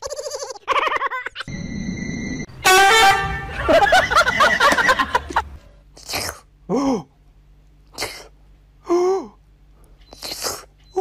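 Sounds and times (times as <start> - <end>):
cat sneezing: 6.0 - 6.5, 7.9 - 8.4.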